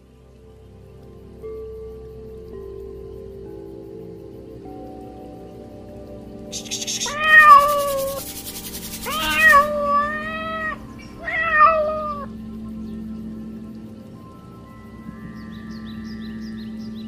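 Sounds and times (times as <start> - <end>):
cat meowing: 6.6 - 8.2, 9.0 - 12.3.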